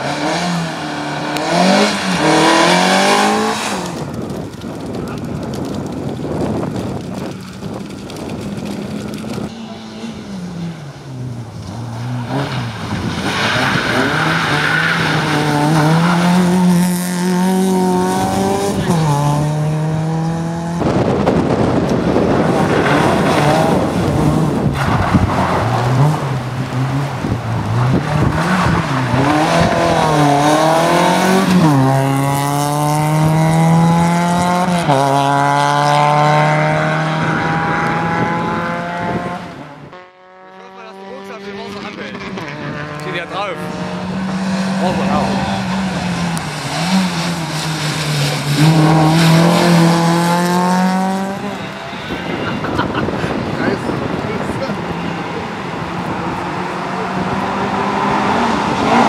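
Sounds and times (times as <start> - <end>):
rally car engines accelerating: 0.0 - 59.0
tyres on gravel: 1.4 - 19.5.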